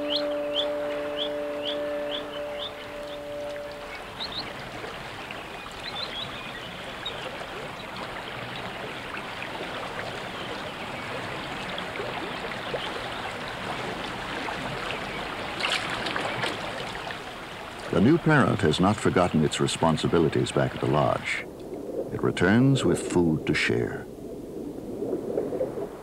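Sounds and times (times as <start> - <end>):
held music chord: 0.0 - 5.3
water running and trickling: 0.0 - 22.9.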